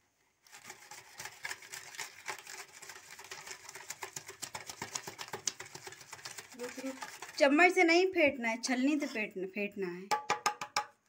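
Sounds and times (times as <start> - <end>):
metal strainer beating against glass bowl: 3.1 - 7.8.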